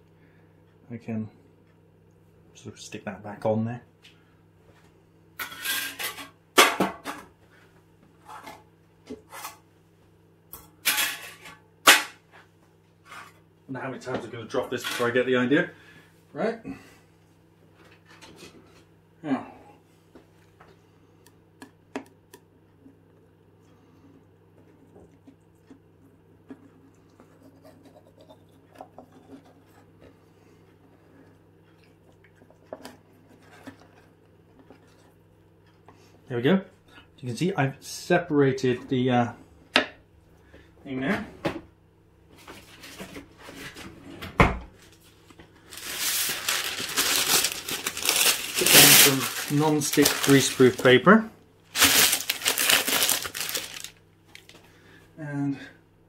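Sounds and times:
low steady hum: 0.0s - 56.0s
scrape: 13.0s - 13.4s.

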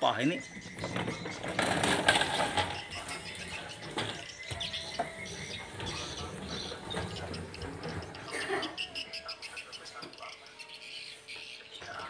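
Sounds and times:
plastic toy car rattling on floor: 0.5s - 8.4s.

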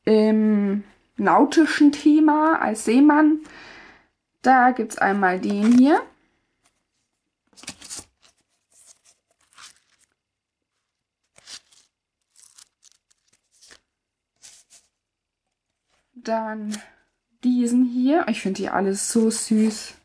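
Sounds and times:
paper pad rustling: 5.3s - 5.9s, 6.6s - 15.0s.

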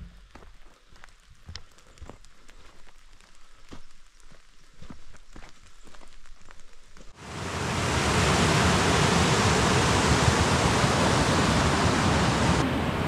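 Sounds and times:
water rushing over rocks: 7.2s - 13.0s.

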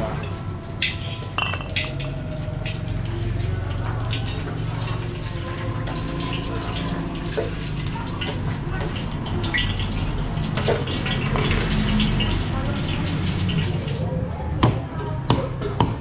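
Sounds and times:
ladle clinking against wok: 0.3s - 2.9s
frying sizzle: 0.3s - 14.1s.

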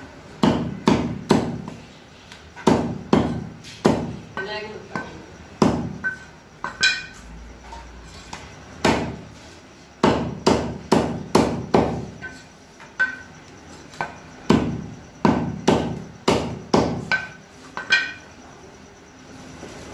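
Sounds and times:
knife chopping on wooden block: 10.0s - 12.4s.

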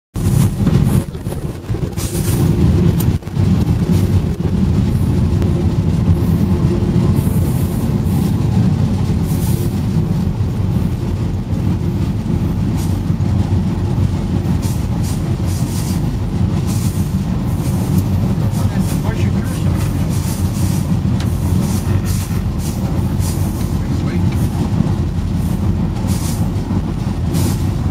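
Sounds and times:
vehicle rumble from on board: 0.1s - 27.9s.

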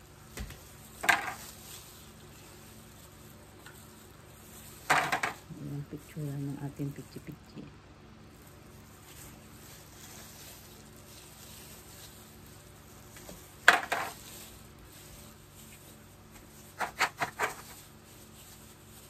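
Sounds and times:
plastic cups clacking on metal tray: 1.0s - 1.4s, 4.9s - 5.4s, 13.6s - 14.2s.

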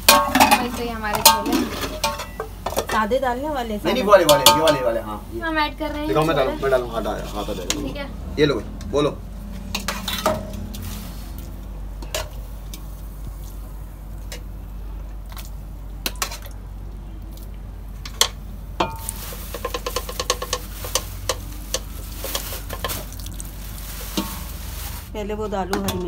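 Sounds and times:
spoon clinking against metal pots: 0.0s - 3.1s, 3.9s - 5.0s, 18.1s - 23.1s, 25.7s - 26.0s.

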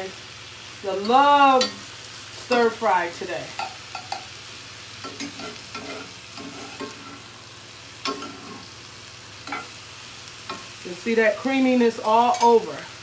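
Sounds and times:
low steady sizzle: 0.0s - 13.0s
metal spoon scraping skillet: 3.5s - 4.4s, 5.0s - 7.3s, 8.0s - 8.8s, 9.4s - 9.8s.

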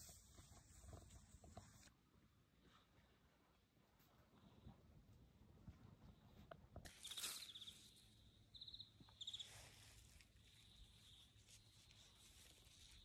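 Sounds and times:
rustle: 6.8s - 8.2s, 9.0s - 13.0s
small animal chirps: 6.9s - 7.9s, 8.5s - 9.6s.

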